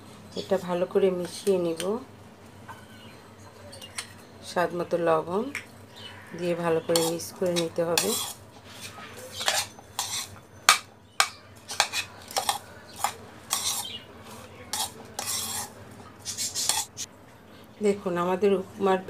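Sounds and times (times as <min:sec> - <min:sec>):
spoon clinking and scraping bowl: 0:06.9 - 0:17.1.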